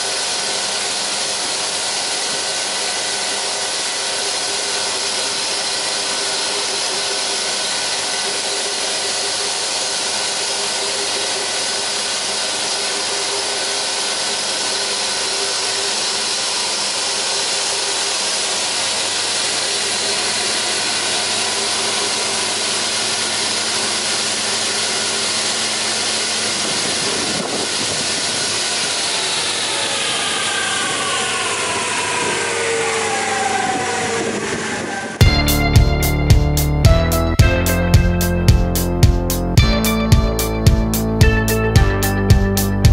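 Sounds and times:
woodworking machine hum and whine: 0.0 - 36.3.

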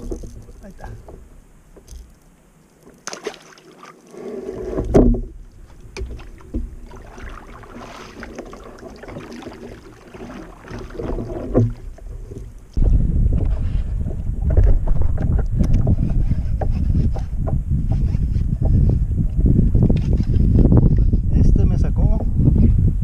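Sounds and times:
kayak paddle splashing water: 2.9 - 12.8.

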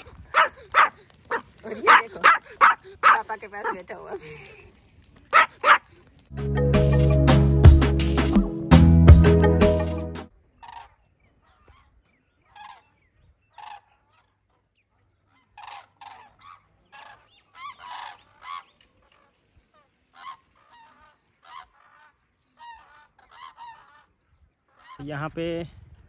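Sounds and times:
cranes calling in flight: 0.0 - 3.8, 20.1 - 25.0.

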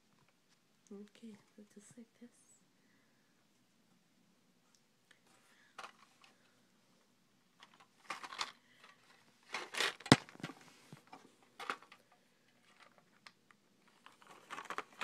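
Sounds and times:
package rustling and crinkling: 7.6 - 15.0.

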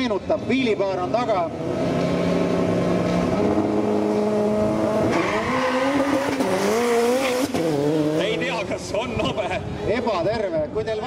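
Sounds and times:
drag car engine accelerating: 0.3 - 8.9.

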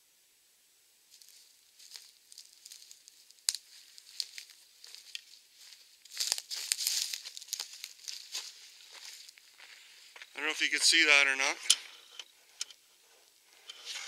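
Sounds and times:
footsteps crunching through dry leaves: 1.1 - 11.5
twig snapping: 1.2 - 5.3.

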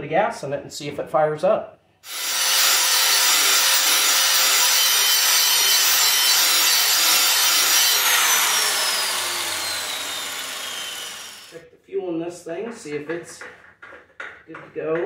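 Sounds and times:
angle grinder grinding steel: 2.1 - 11.6
motor winding down whine: 2.1 - 11.6.

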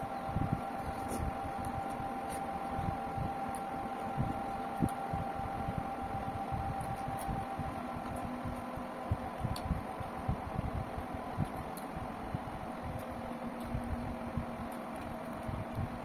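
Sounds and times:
electric fan hum: 0.0 - 16.0
faint steady whine: 0.0 - 16.0.

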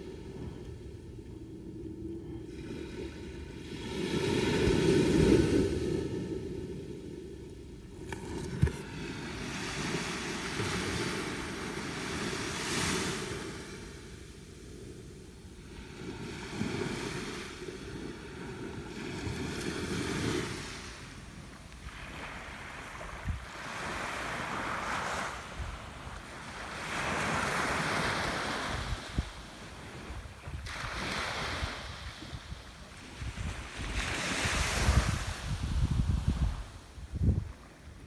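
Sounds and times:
wind rumbling on microphone: 0.0 - 38.0
surf washing onto beach: 2.5 - 7.3.

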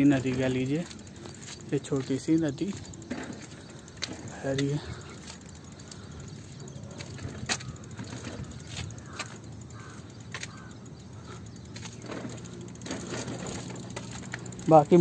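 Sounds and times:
faint outdoor rumble: 0.0 - 15.0
light clicks and knocks: 0.1 - 10.7.

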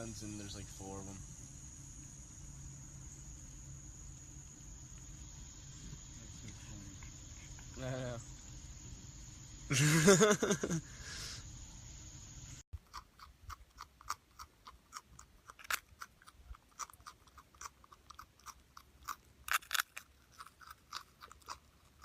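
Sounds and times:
marmot chewing crunching clicks: 12.8 - 22.0.

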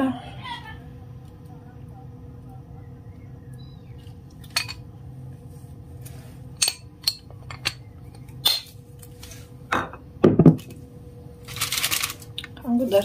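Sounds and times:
faint steady hum: 0.0 - 13.0
kitchen items clicking and knocking: 6.6 - 8.7.

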